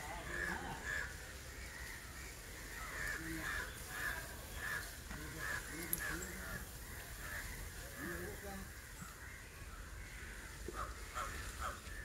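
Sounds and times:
birds calling: 0:00.0 - 0:12.0.

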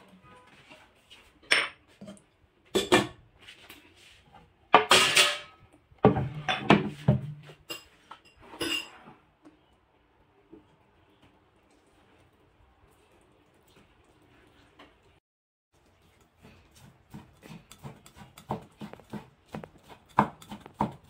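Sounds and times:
ceramic dishes clinking: 0:07.6 - 0:09.1.

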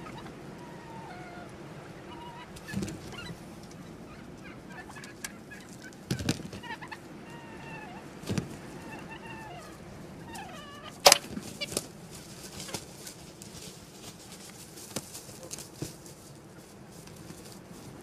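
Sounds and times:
animal calling: 0:00.0 - 0:11.8.

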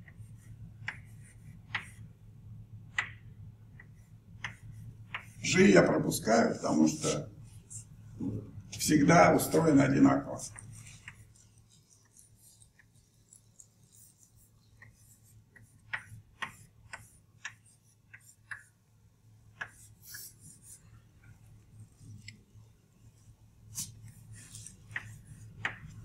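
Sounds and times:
chalk scratching on blackboard: 0:00.0 - 0:02.1, 0:03.8 - 0:07.9, 0:09.4 - 0:18.8, 0:19.5 - 0:22.4, 0:23.1 - 0:26.0
low steady hum: 0:00.0 - 0:26.0.

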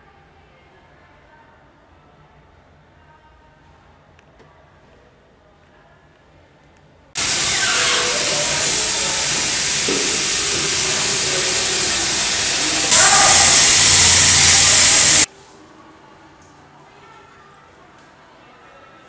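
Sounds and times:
tap water running into sink: 0:07.2 - 0:15.3.

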